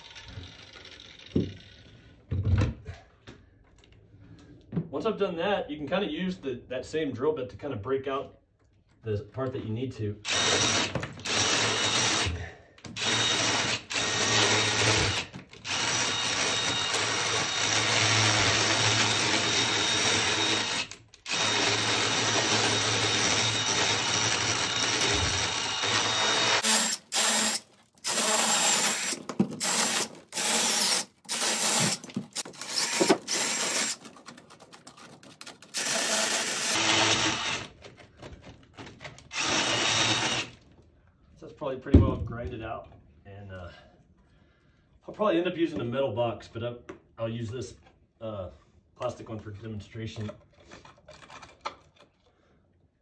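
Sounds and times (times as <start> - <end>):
cordless drill boring into block: 10.3 - 12.4, 13.0 - 34.0, 35.7 - 37.7, 39.3 - 40.6.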